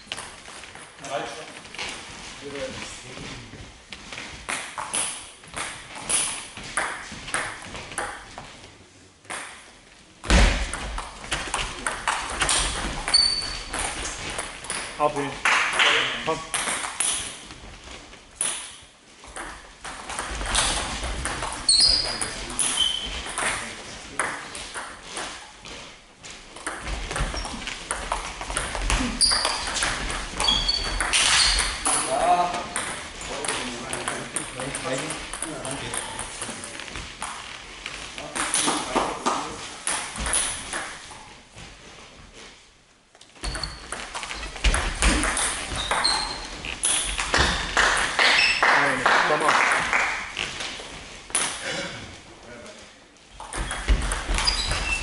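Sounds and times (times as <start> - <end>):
short high squeaks: 13.1 - 13.7, 21.6 - 23.2, 30.4 - 31.8, 43.4 - 44.5, 45.7 - 47.1, 54.4 - 55.0
table tennis balls clicking: 26.5 - 37.4, 43.2 - 48.6.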